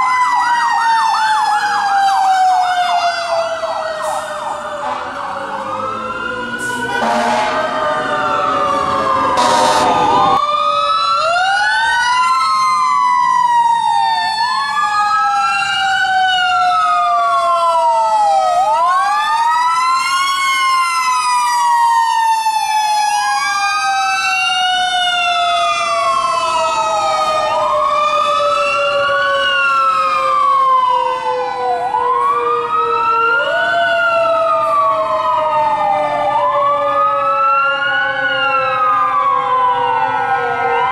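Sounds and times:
electronic siren wailing: 0:00.0 - 0:40.9
air horn blasts: 0:04.8 - 0:05.2, 0:06.6 - 0:07.8, 0:09.4 - 0:10.0.

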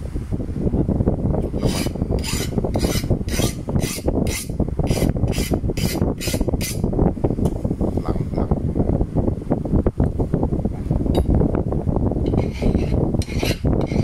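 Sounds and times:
low rumble: 0:00.0 - 0:14.0
file scraping knife blade: 0:01.6 - 0:06.8, 0:12.3 - 0:14.0.

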